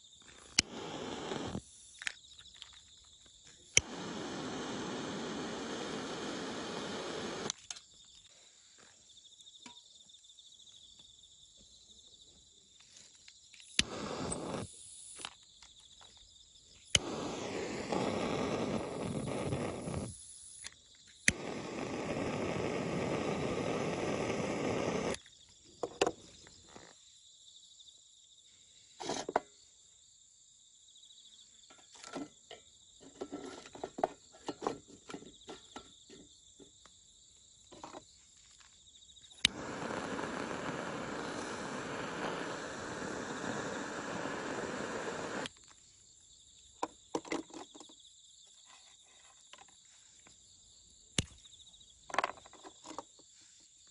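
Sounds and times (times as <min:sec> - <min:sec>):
insects chirring: 0:00.0 - 0:53.9
torch lighter hissing: 0:00.4 - 0:02.2, 0:03.7 - 0:07.8, 0:13.6 - 0:15.4, 0:16.8 - 0:25.3, 0:39.4 - 0:45.6
lighter ignition click: 0:00.6 - 0:01.5, 0:13.6 - 0:15.2, 0:17.0 - 0:19.9, 0:20.5 - 0:25.2.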